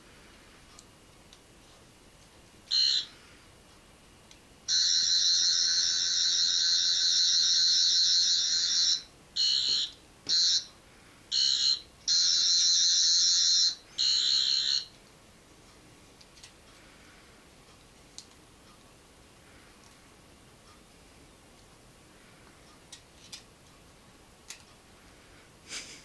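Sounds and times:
toy electronic high buzz: 4.7 - 10.7, 11.4 - 14.9.

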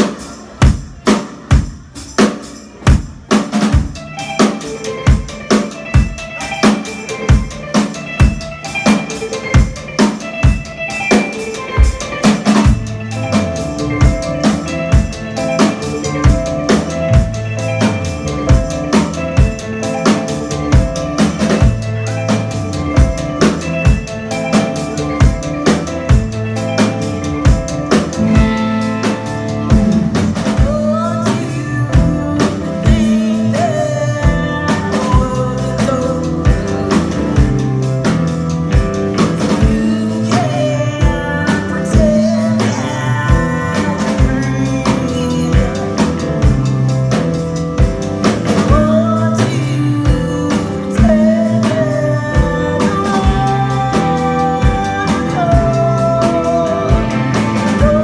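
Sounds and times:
electric guitar: 0.0 - 58.0
steady drum beat: 0.0 - 58.0
electric bass: 3.8 - 58.0
woman singing into a microphone: 30.6 - 37.6, 39.4 - 46.3, 48.6 - 58.0.

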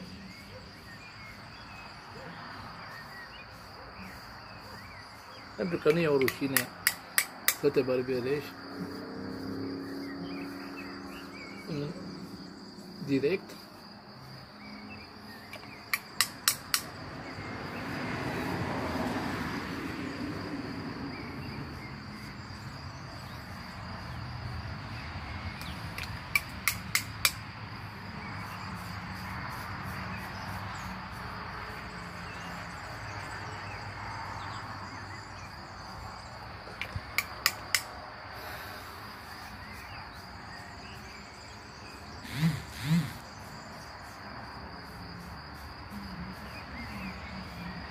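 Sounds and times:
crickets chirring: 0.0 - 47.9
sharp clicks: 5.9 - 7.7, 15.5 - 16.9, 25.6 - 27.4, 36.8 - 38.0.

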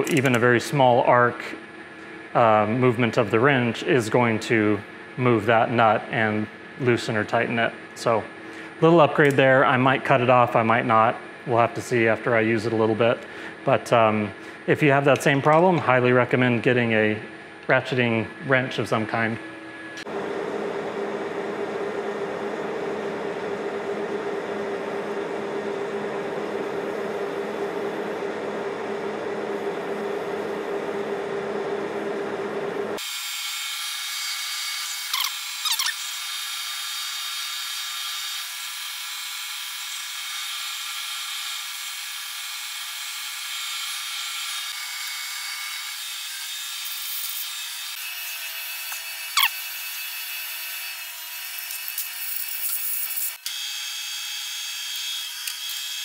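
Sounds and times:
lathe machine hum: 19.4 - 33.0
drill squealing: 34.8 - 36.2, 48.8 - 49.8.

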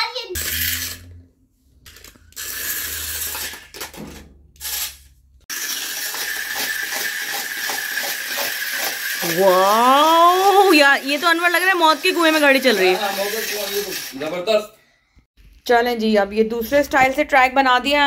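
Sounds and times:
toy car motor whining: 0.4 - 1.2, 1.9 - 3.8, 4.6 - 14.3
wheels rattling over plastic track: 1.9 - 4.0, 5.5 - 14.5.

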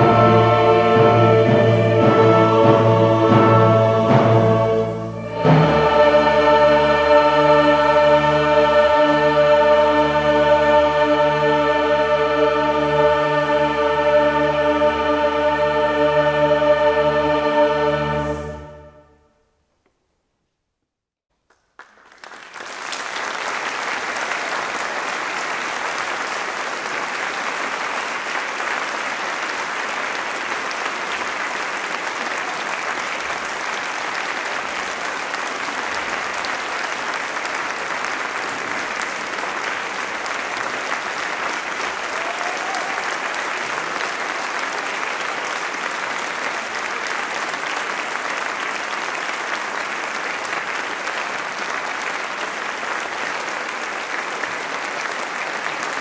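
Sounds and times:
audience applause: 21.5 - 56.0.

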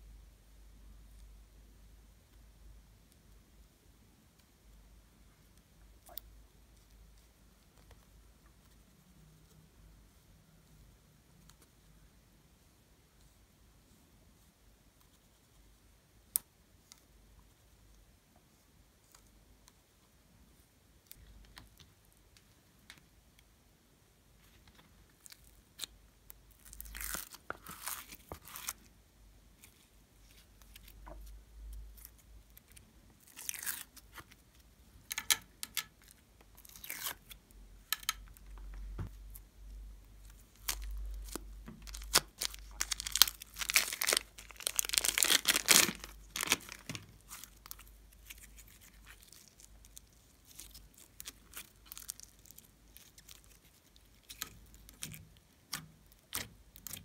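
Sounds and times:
crackling foam beads: 25.1 - 28.9, 29.5 - 35.3, 40.1 - 57.0
crinkly tearing: 26.5 - 28.9, 32.0 - 34.3, 36.0 - 37.3, 40.3 - 57.0
sticky clicks of slime: 54.3 - 57.0.

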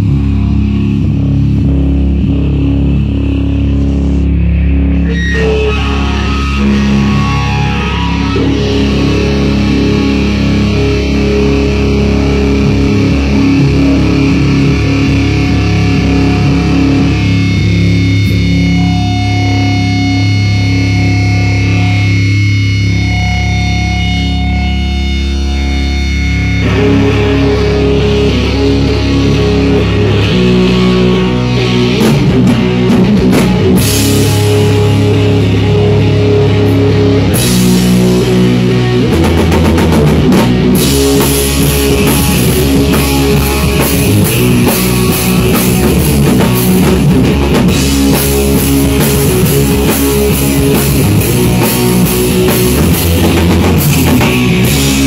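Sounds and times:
electric guitar: 0.0 - 55.0
drums and cymbals: 26.6 - 55.0.

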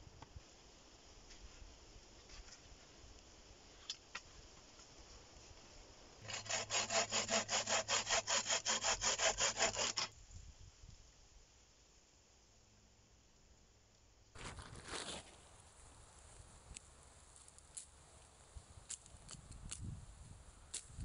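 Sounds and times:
hand saw cutting wood: 6.2 - 10.1.

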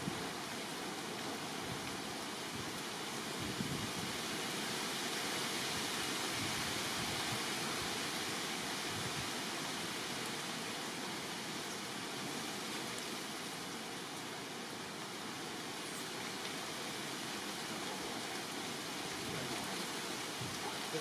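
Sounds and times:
steady background hiss: 0.0 - 21.0.

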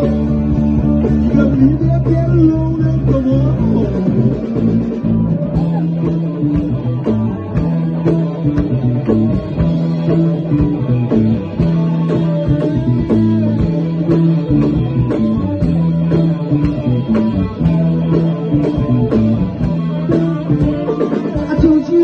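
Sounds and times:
live blues rock band: 0.0 - 22.0.

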